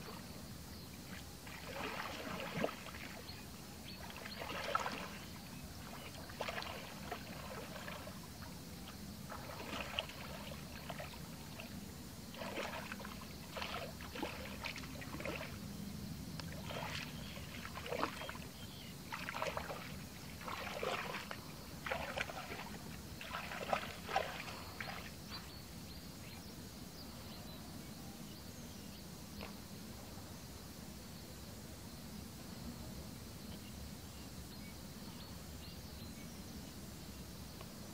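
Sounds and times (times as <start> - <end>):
wading through muddy water: 0.0 - 25.6.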